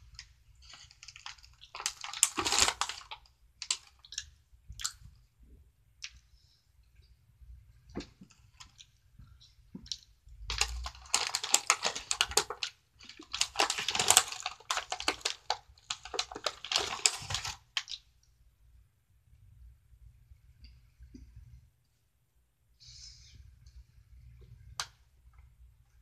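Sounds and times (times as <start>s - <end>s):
snack packet crinkling: 0.1s - 5.0s, 9.9s - 18.0s.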